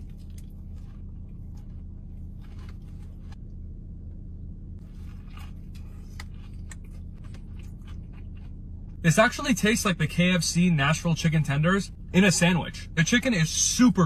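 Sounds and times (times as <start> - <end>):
crunching and chewing: 0.0 - 3.4, 4.8 - 9.0
steady low hum: 0.0 - 14.0.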